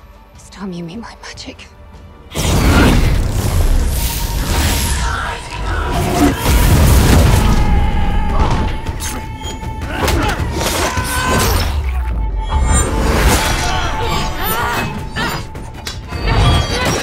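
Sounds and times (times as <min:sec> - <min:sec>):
dramatic orchestral score: 0:00.0 - 0:17.0.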